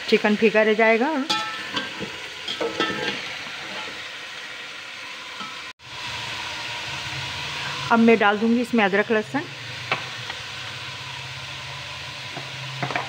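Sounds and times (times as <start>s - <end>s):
chicken sizzling in hot oil: 0.0s - 13.0s
metal spatula scraping pot: 1.3s - 4.1s.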